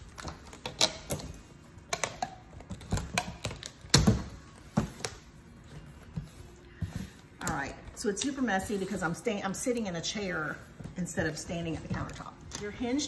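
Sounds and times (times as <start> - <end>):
tape taps and crinkles: 0.0 - 8.4.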